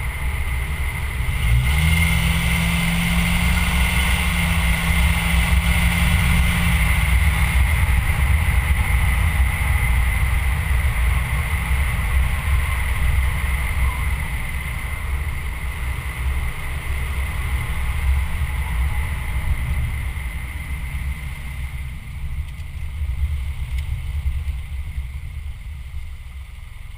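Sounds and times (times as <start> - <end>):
wind and road noise: 0.0 - 26.9.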